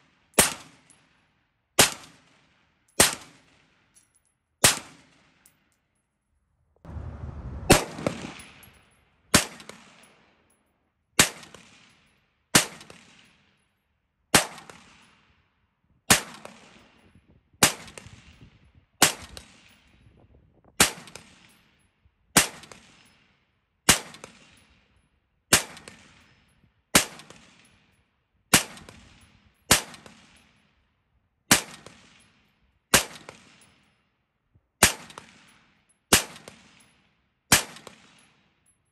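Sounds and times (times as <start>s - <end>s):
low rumble: 6.9s - 8.9s
rifle single shots: 6.9s - 10.0s.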